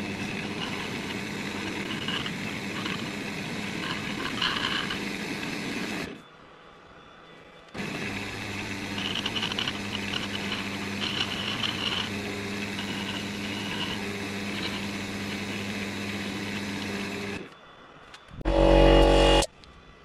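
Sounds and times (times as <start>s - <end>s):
hand rubbing spinning wood: 0.0s - 6.2s, 7.8s - 17.5s
wood lathe humming: 0.0s - 6.2s, 7.8s - 17.5s, 18.4s - 19.5s.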